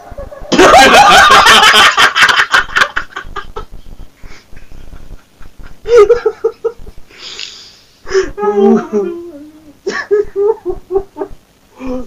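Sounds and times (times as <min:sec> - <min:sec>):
men laughing: 0:00.0 - 0:07.1, 0:09.8 - 0:11.4.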